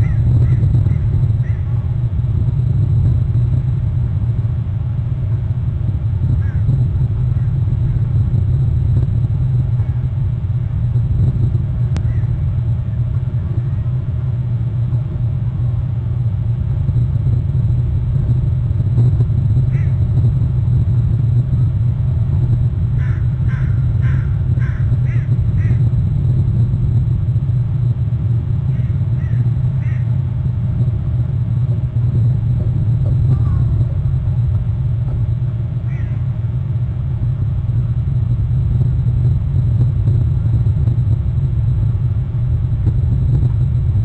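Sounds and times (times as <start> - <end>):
bird calling: 0.0 - 1.7, 12.0 - 12.4, 19.7 - 20.0, 23.0 - 25.9, 28.7 - 30.1, 35.8 - 36.3
steady low rumble: 0.0 - 44.0.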